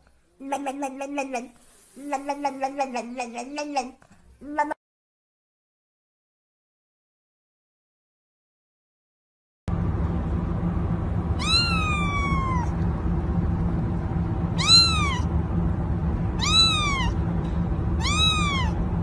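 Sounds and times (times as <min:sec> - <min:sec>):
low hum: 0:09.7 - 0:19.0
cat meowing: 0:11.4 - 0:12.8, 0:14.6 - 0:15.3, 0:16.4 - 0:17.2, 0:18.0 - 0:18.8.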